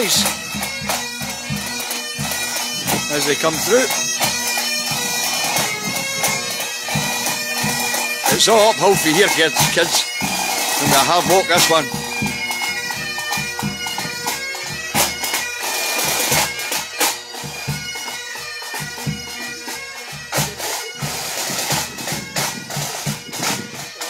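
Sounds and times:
bagpipes playing a tune: 0.0s - 24.0s
drum strikes: 2.2s - 4.4s.

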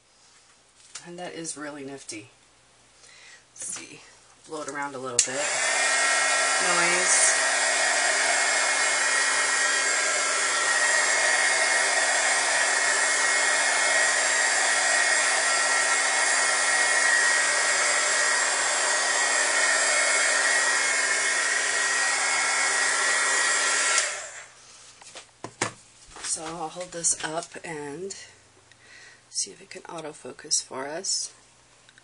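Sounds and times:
heat tool blowing air: 5.2s - 24.6s.

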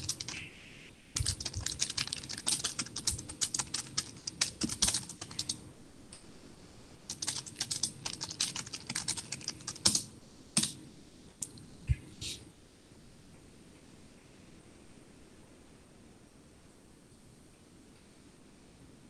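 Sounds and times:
typing on keyboard: 0.0s - 0.4s, 1.2s - 5.6s, 7.1s - 10.8s.

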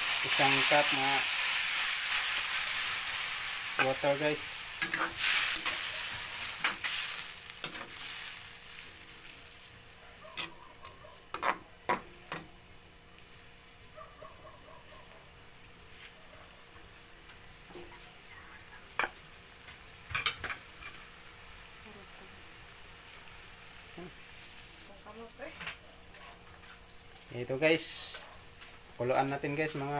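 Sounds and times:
metal spatula scraping a wok: 0.0s - 9.4s
food sizzling: 0.0s - 29.9s.

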